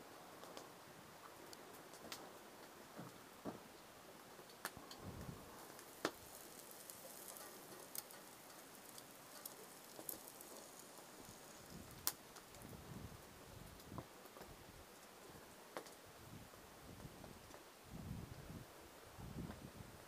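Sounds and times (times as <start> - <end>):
food sizzling in a pan: 5.4 - 12.7.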